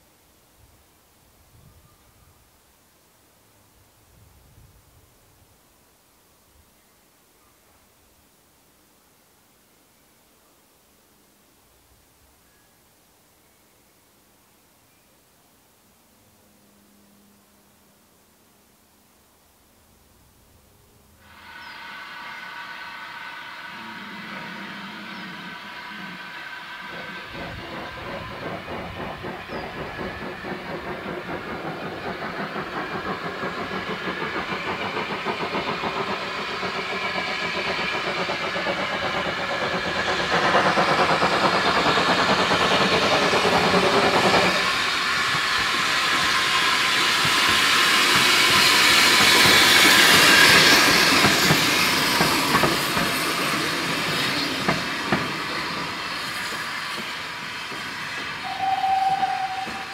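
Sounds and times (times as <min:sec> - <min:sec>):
steam hissing: 0:21.2 - 0:59.9
steam locomotive chuffing: 0:21.2 - 0:59.9.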